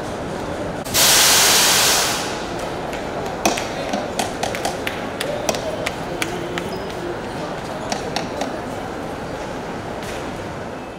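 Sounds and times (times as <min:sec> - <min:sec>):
background hubbub: 0:00.0 - 0:10.9
loud hiss: 0:00.9 - 0:02.5.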